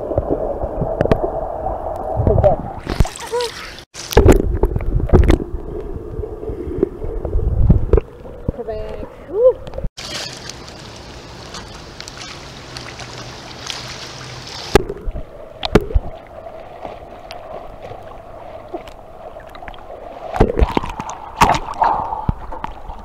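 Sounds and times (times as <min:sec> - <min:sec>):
water lapping and sloshing: 0:02.7 - 0:23.0
knocks and splashes: 0:02.8 - 0:05.5, 0:10.0 - 0:23.0.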